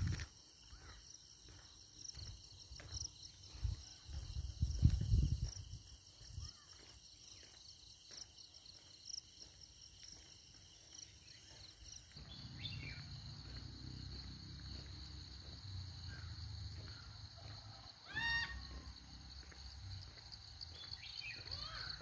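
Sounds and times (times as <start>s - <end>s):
insects chirping: 0.0s - 22.0s
bird call: 17.4s - 19.0s, 20.9s - 22.0s.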